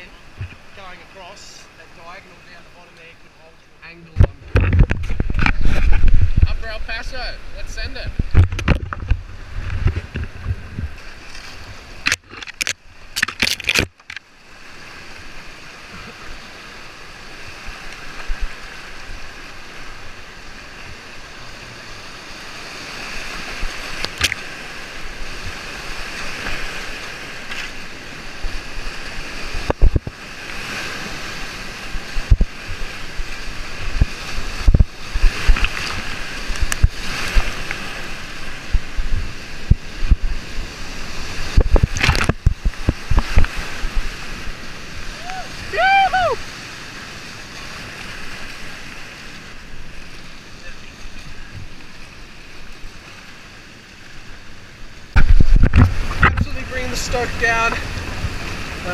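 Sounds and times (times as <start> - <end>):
sharp knocks against hull: 8.2 - 11.0
whitewater rushing: 14.6 - 53.3, 54.2 - 58.9.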